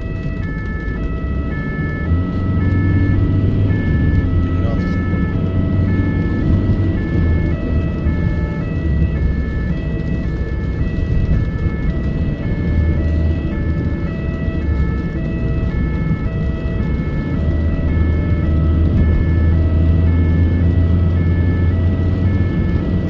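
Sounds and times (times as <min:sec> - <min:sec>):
engine and road rumble: 0:00.0 - 0:23.0
two-tone siren: 0:00.0 - 0:23.0.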